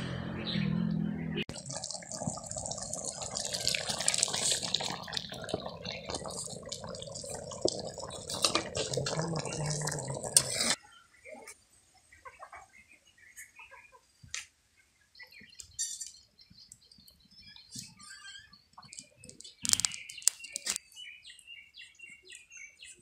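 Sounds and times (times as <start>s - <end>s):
curry bubbling in a wok: 1.5s - 10.8s.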